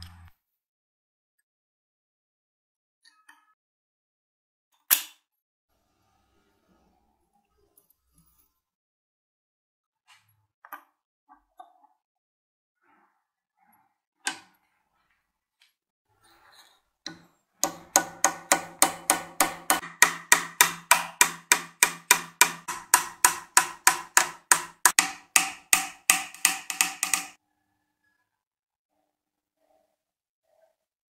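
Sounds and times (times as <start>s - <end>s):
hammer striking metal punch: 17.6s - 27.4s.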